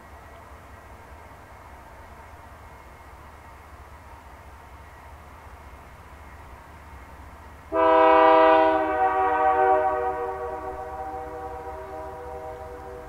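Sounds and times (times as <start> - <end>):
locomotive air horn chord: 7.7 - 13.0.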